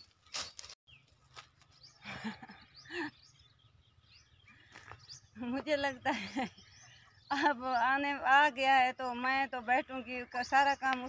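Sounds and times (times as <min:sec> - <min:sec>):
dry branches rustling: 0:00.0 - 0:01.9
bird chirps: 0:00.0 - 0:11.0.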